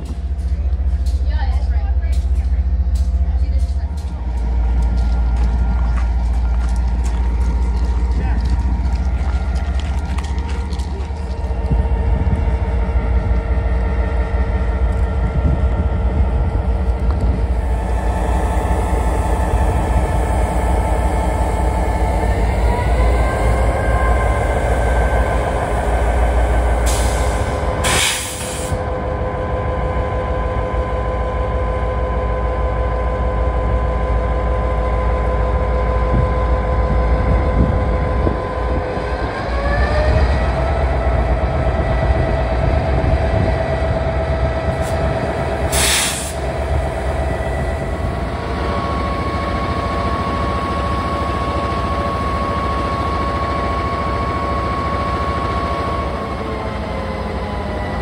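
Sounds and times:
diesel locomotive engine whine: 0.0s - 58.0s
air hisses: 26.8s - 28.8s.

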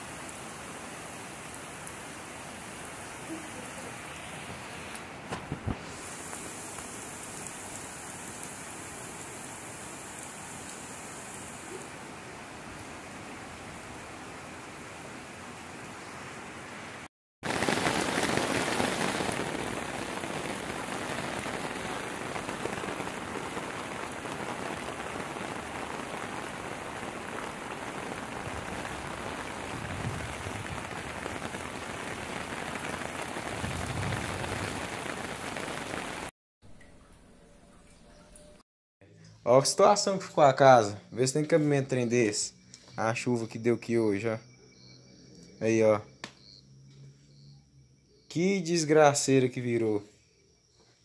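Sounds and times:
heavy rain on roofs and water: 0.0s - 36.3s.

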